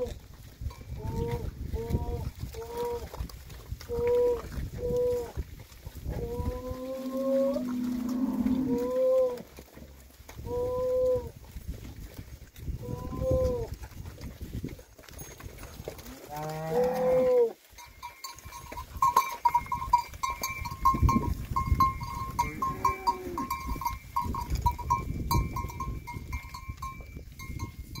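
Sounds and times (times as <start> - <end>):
cows mooing: 6.1 - 9.5, 16.0 - 17.6, 22.0 - 23.7.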